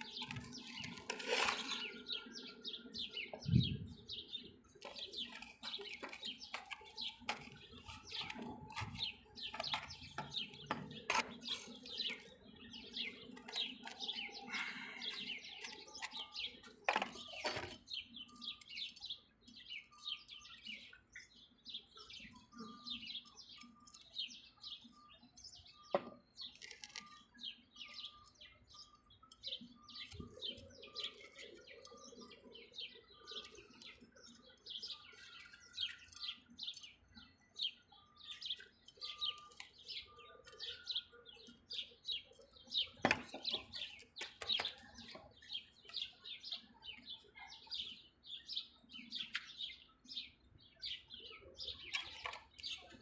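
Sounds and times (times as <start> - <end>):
trowel scraping soil in pot: 0.0 - 2.3
small birds chirping: 0.0 - 53.0.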